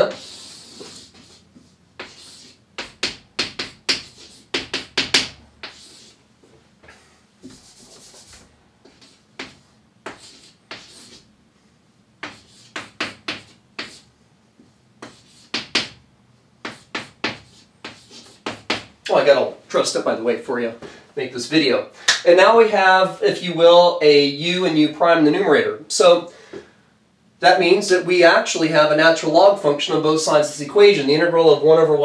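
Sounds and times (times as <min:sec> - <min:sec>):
chalk tapping on chalkboard: 0:00.1 - 0:06.2, 0:07.4 - 0:11.3, 0:12.2 - 0:14.1, 0:15.0 - 0:16.0, 0:16.6 - 0:19.0.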